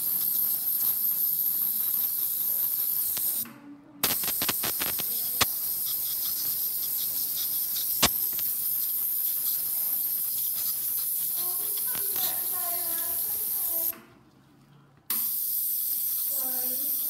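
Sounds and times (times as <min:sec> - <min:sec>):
dental scaler hissing: 0:00.0 - 0:03.4, 0:04.0 - 0:13.9, 0:15.1 - 0:17.0.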